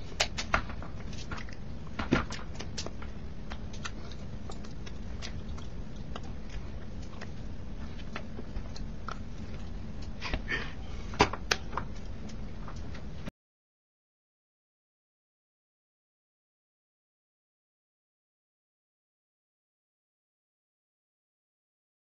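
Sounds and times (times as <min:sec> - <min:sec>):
low room hum: 0:00.0 - 0:13.3.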